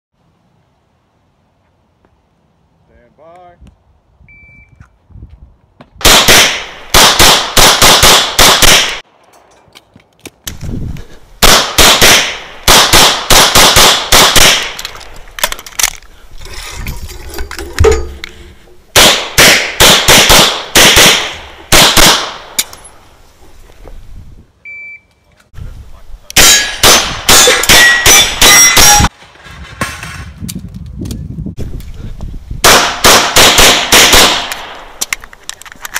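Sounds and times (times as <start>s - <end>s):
rapid pistol shots: 6.0s - 9.0s, 11.4s - 14.8s, 19.0s - 22.5s, 32.6s - 34.9s.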